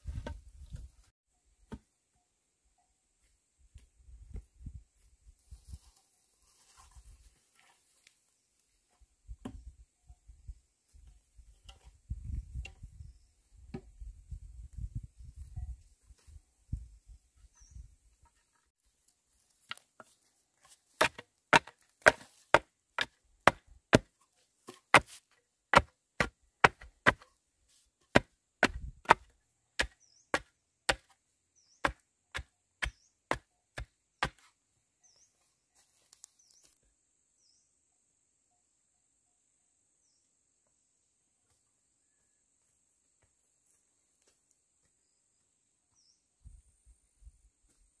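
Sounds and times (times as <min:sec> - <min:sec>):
blade chopping bamboo: 0:21.0 - 0:27.3, 0:28.1 - 0:31.2, 0:31.8 - 0:34.4
faint high insect drone: 0:36.8 - 0:47.9.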